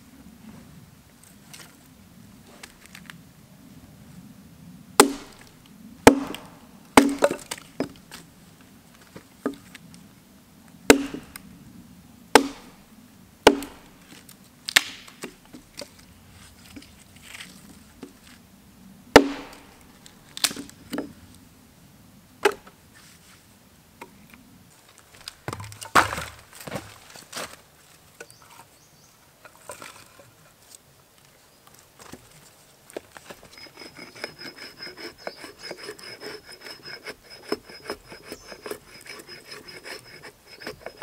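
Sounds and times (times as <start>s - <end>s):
axe chopping wood: 5.0s - 7.6s, 10.9s - 11.3s, 12.3s - 12.8s, 13.4s - 13.9s, 14.7s - 15.2s, 19.2s - 19.7s, 25.5s - 26.9s.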